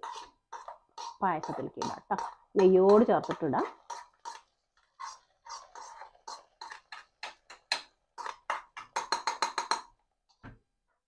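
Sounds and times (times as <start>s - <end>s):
spoon scraping metal pan: 0.0s - 9.9s.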